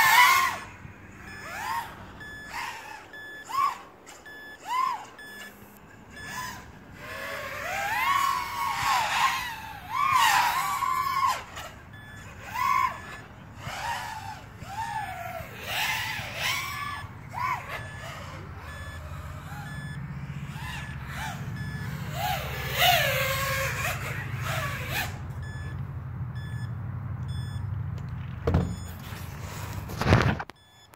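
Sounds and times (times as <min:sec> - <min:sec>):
steady low hum: 0:00.0 - 0:30.8
drone motors whining: 0:00.0 - 0:30.9
faint beeps: 0:00.6 - 0:07.0, 0:10.3 - 0:13.7, 0:16.4 - 0:22.4, 0:25.4 - 0:27.7, 0:28.6 - 0:29.9, 0:30.5 - 0:30.9.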